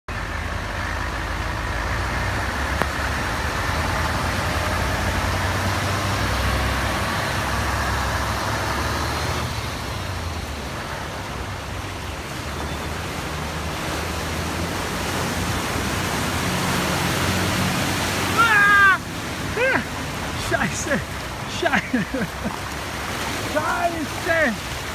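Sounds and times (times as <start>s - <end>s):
vehicle engines running: 0.1s - 24.9s
water splashing from wheels: 0.1s - 24.9s
short cry of person: 18.4s - 19.0s.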